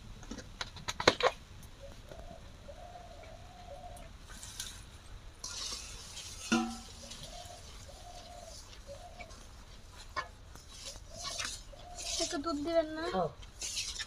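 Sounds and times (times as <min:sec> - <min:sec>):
doves cooing: 0:01.8 - 0:04.2, 0:06.6 - 0:13.3
spatula scraping in wok: 0:05.4 - 0:14.0.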